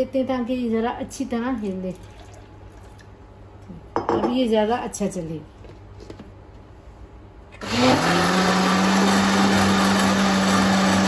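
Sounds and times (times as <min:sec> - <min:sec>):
electric blender running: 0:07.6 - 0:11.0.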